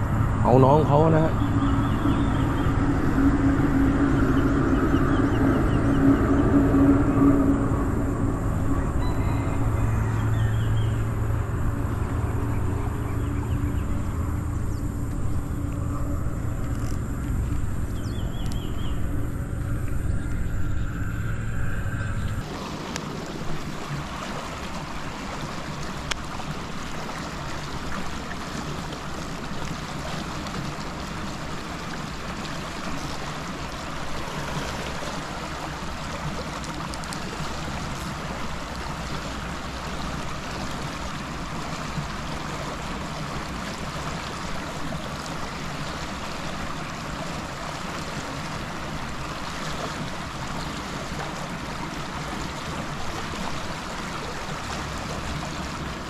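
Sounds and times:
water rushing from a pipe: 0:22.4 - 0:56.0.

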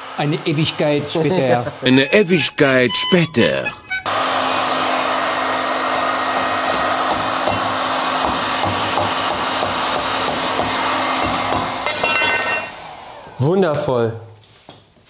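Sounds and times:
heat gun blowing: 0:02.1 - 0:13.4.

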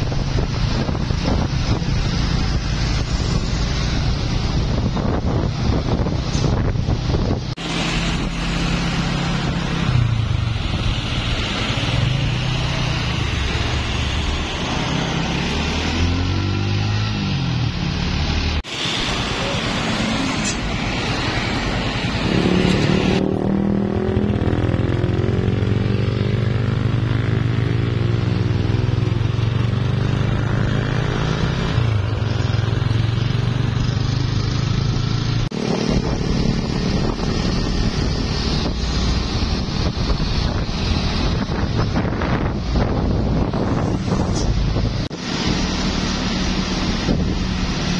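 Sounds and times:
road and tyre noise: 0:00.0 - 0:47.9
truck engines accelerating: 0:00.0 - 0:47.9.

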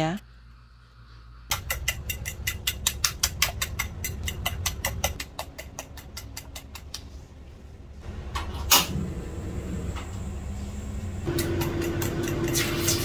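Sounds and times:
steady low hum: 0:00.0 - 0:13.0
utensil beating eggs in ceramic bowl: 0:01.5 - 0:07.1
gas stove burner igniting: 0:08.1 - 0:13.0.

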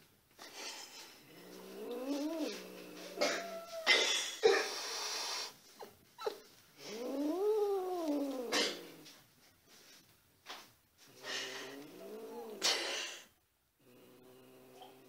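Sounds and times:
cat hissing: 0:00.4 - 0:05.6, 0:06.2 - 0:09.1, 0:11.1 - 0:15.0
cat yowling: 0:03.1 - 0:04.2.

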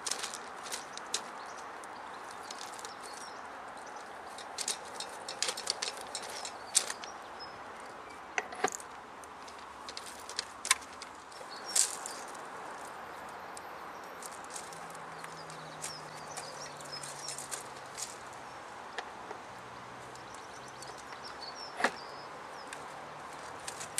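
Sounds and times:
steady outdoor hiss: 0:00.0 - 0:23.9
metal clicks and knocks: 0:04.3 - 0:07.1, 0:08.4 - 0:11.2.

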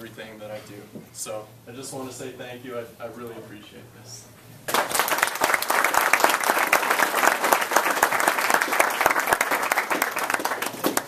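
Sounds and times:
audience applauding: 0:04.7 - 0:11.0.

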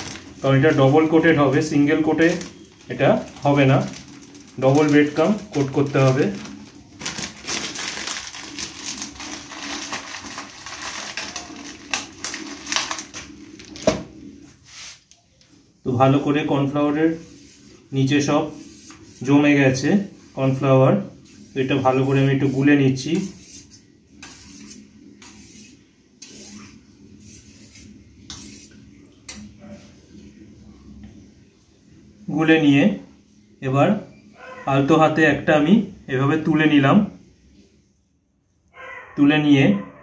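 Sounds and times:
fork scraping metal bowl: 0:21.5 - 0:28.8.

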